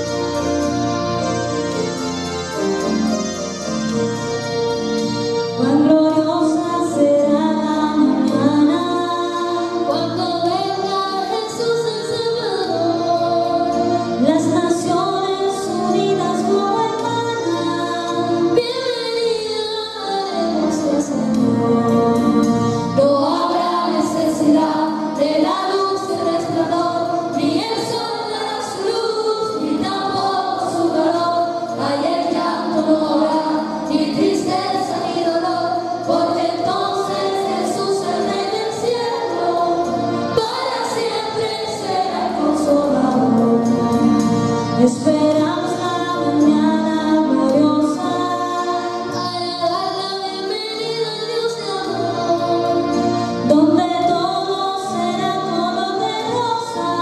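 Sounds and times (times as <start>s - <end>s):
keyboard accompaniment: 0.0s - 57.0s
two women singing a hymn: 5.6s - 57.0s.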